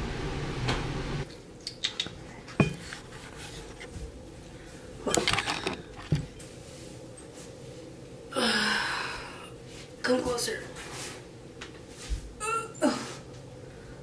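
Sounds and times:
steady low hum: 0:00.0 - 0:14.0
phone handling rustling: 0:05.1 - 0:06.4.

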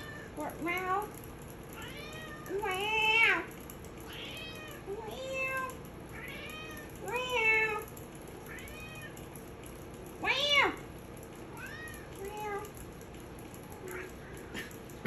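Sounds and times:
cat meowing: 0:08.5 - 0:09.2, 0:11.5 - 0:12.7.

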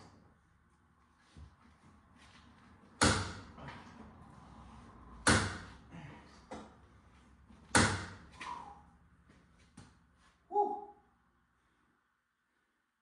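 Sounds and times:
sharp knocks: 0:03.0 - 0:03.4, 0:05.2 - 0:05.7, 0:07.7 - 0:08.2.

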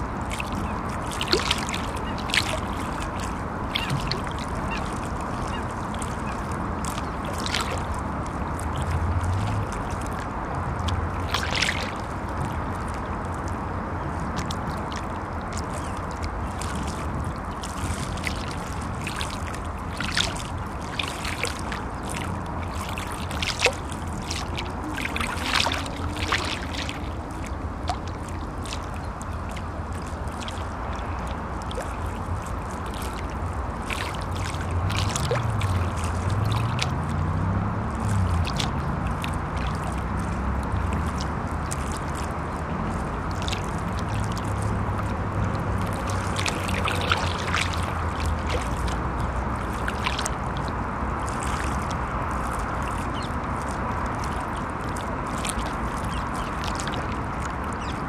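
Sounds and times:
river waves lapping on bank: 0:00.0 - 0:58.0
traffic rumble on bridge: 0:00.0 - 0:58.0.

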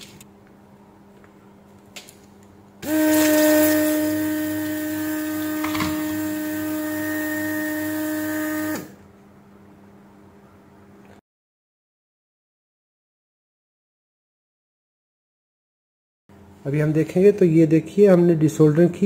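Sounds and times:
vacuum pump hissing: 0:02.8 - 0:09.0.

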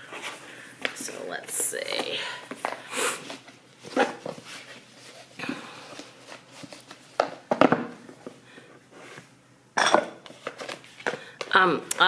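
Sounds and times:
gift box rustling: 0:01.8 - 0:08.4.

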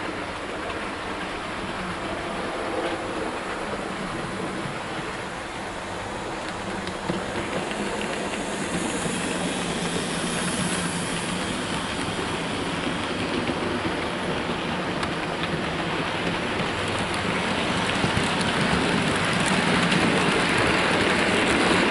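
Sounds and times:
wheels rattling over rails: 0:02.6 - 0:21.9
model train motor humming: 0:06.3 - 0:13.8.

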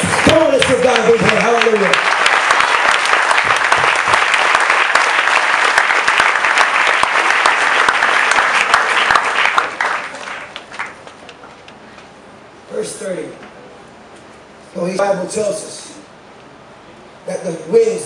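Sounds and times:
congregation clapping: 0:00.0 - 0:11.8.

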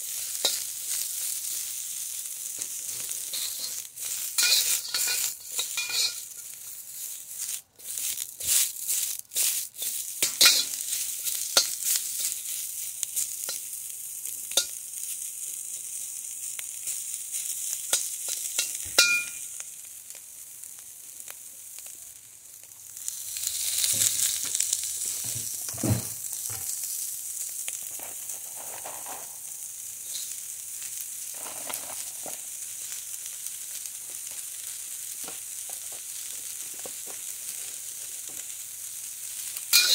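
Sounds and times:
vegetables sizzling in a wok: 0:00.0 - 0:39.9
metal spatula scraping a pan: 0:00.1 - 0:01.8, 0:02.7 - 0:13.7, 0:17.9 - 0:19.4, 0:28.1 - 0:30.4.

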